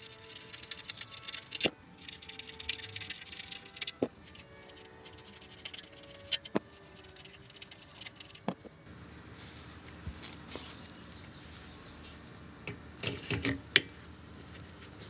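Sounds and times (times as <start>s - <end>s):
metal parts clicking and tapping: 0.0s - 8.7s, 12.7s - 13.9s.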